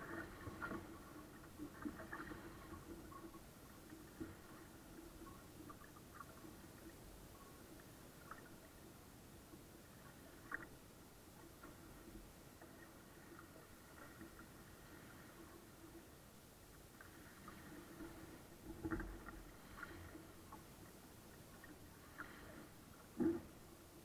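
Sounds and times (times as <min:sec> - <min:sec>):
water lapping against hull: 0:00.0 - 0:24.0
soft ticks: 0:10.4 - 0:10.8.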